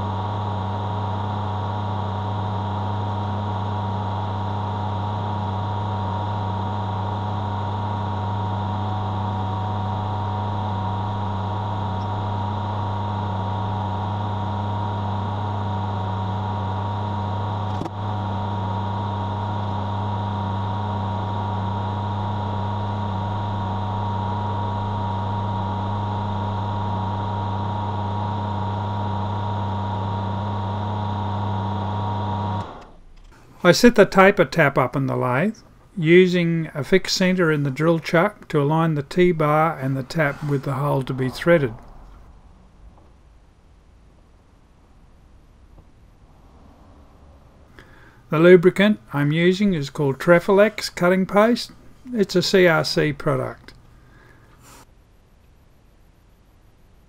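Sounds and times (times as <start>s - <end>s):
metal lathe humming and whining: 0.0s - 33.0s, 38.6s - 42.2s
drill boring into metal: 38.5s - 42.0s.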